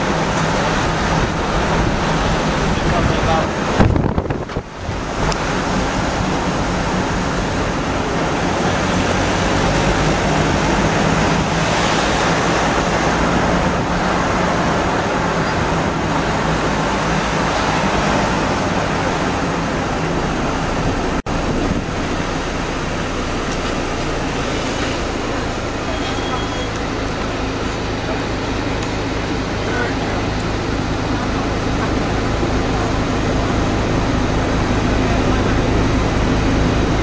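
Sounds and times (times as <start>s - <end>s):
vehicle engine hum: 0.0s - 37.0s
wind and road noise: 0.0s - 37.0s.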